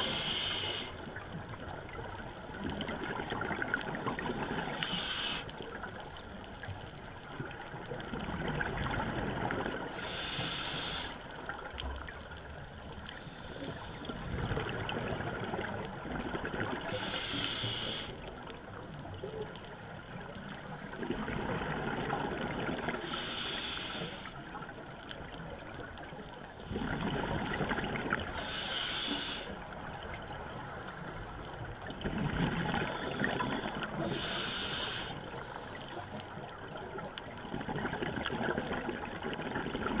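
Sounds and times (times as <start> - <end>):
regulator hiss: 0.0 - 1.0, 4.6 - 5.5, 10.0 - 11.2, 16.9 - 18.1, 23.0 - 24.3, 28.4 - 29.6, 34.0 - 35.7
exhaled bubbles rumbling underwater: 0.0 - 40.0.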